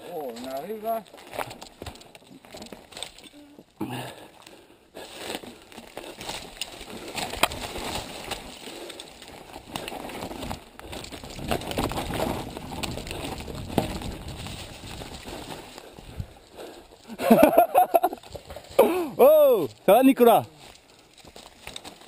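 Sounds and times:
bike tyres on dirt trail: 0.0 - 22.0
bike rattling over bumps: 5.1 - 18.8.

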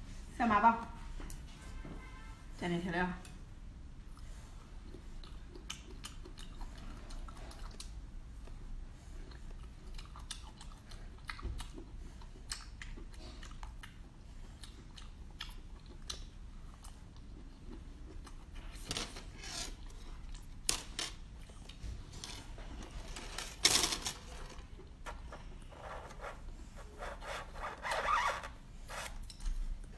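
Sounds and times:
chewing and lip-smacking: 4.0 - 18.8.

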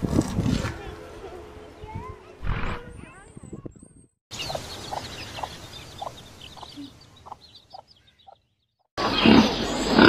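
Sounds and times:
faint high chirping: 3.0 - 8.6
hen clucking: 4.4 - 8.4.

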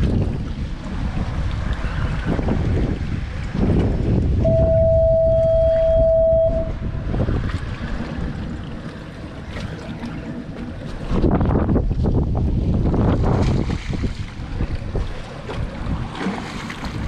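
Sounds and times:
wind buffeting microphone: 0.0 - 17.0
steady single-pitched tone: 4.4 - 7.2.

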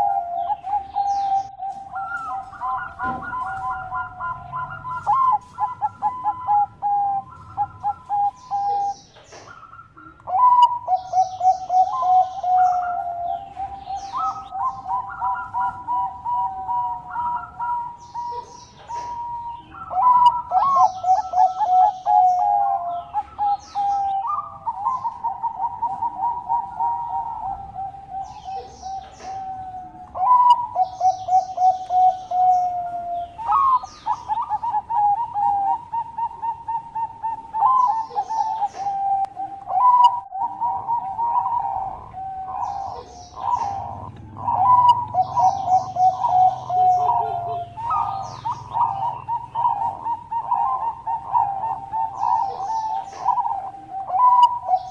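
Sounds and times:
dove staccato cooing: 0.0 - 54.9
small birds chirping: 0.0 - 54.9.

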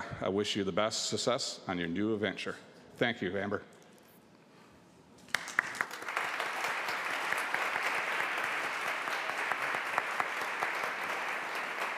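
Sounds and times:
crowd applauding: 5.2 - 11.9.

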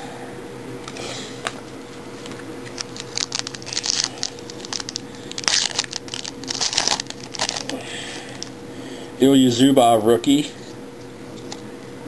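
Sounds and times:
cards and wrapper crinkling: 2.2 - 7.8.

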